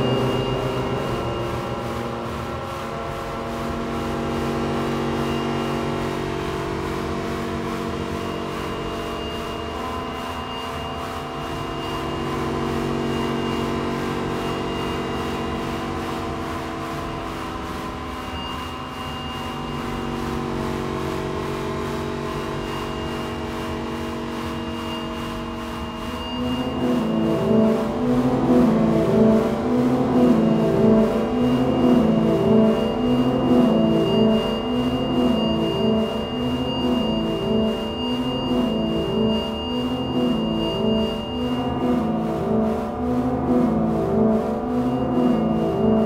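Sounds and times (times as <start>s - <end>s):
slow music of held chords: 0.0s - 46.0s.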